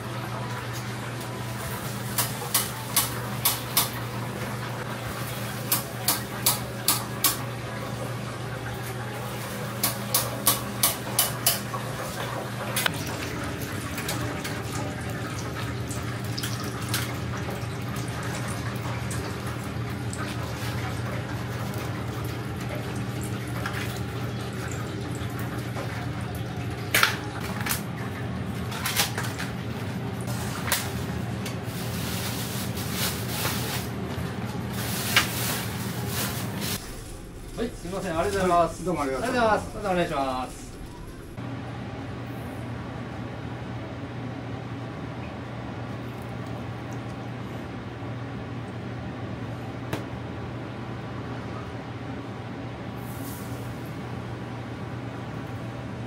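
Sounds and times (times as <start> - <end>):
oil sizzling in a deep fryer: 0.0 - 27.0, 52.8 - 56.0
kitchen hum: 0.0 - 56.0.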